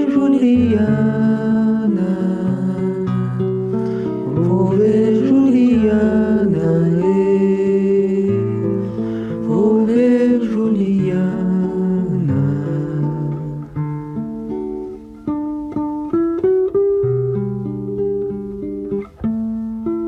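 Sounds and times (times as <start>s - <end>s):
acoustic guitar: 0.0s - 20.0s.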